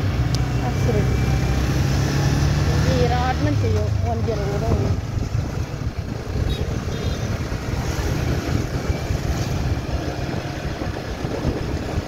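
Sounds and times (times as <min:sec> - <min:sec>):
motorcycle engine accelerating: 0:00.0 - 0:12.0
wind rumble on microphone: 0:02.6 - 0:12.0.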